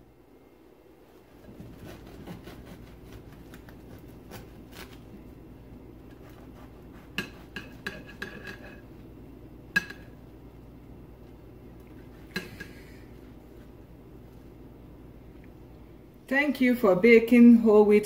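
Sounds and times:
knife sawing through bread: 1.2s - 5.0s, 6.2s - 8.8s.

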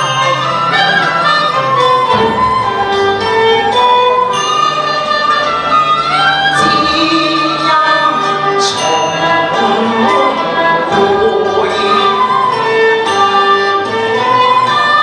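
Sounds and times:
bowed string ensemble: 0.0s - 15.0s
woman singing opera: 6.6s - 12.5s.

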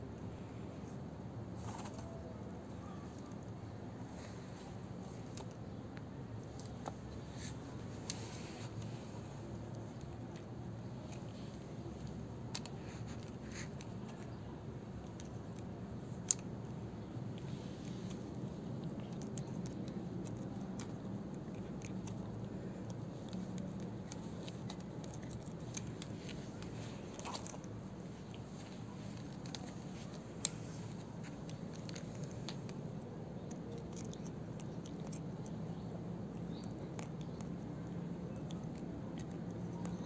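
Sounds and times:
steady low hum: 0.0s - 40.0s
cat gnawing on plastic peg: 3.1s - 40.0s.

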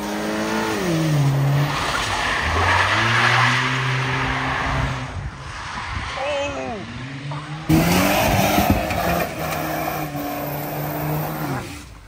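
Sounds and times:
tyres skidding on wet pavement: 0.0s - 12.0s
car engine revving: 6.8s - 12.0s.

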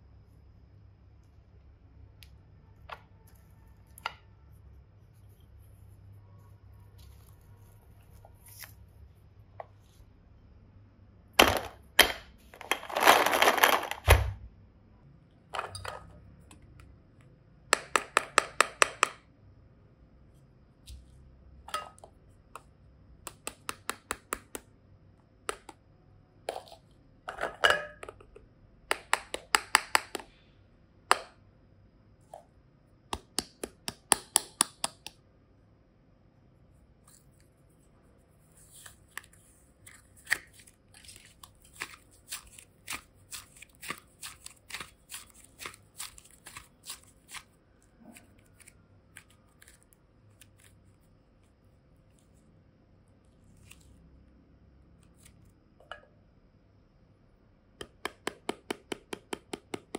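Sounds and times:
fingers clicking plastic containers: 28.1s - 30.4s, 57.8s - 59.9s
clay pulled and stretched: 36.7s - 52.5s, 53.2s - 54.0s.

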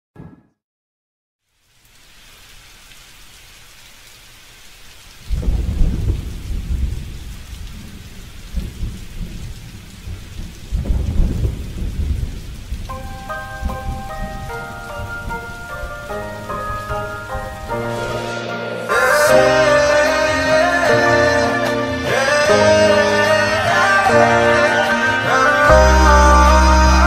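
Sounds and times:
rain hiss: 1.4s - 27.0s
thunder rumble: 5.2s - 27.0s
melody of high notes: 12.9s - 27.0s.

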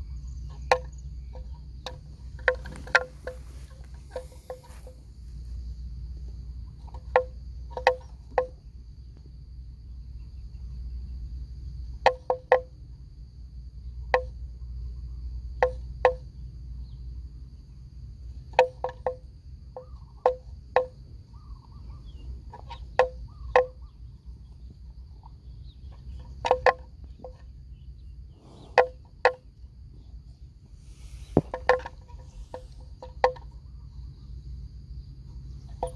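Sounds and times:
faint high-pitched whine: 0.0s - 35.9s
low steady rumble: 0.0s - 35.9s
sharp hollow knocks: 0.6s - 5.0s, 6.8s - 8.6s, 22.6s - 23.8s, 31.0s - 33.5s.

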